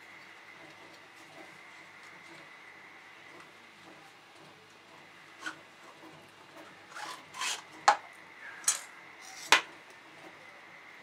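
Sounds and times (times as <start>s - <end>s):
knife scraping plaster: 6.9s - 7.7s.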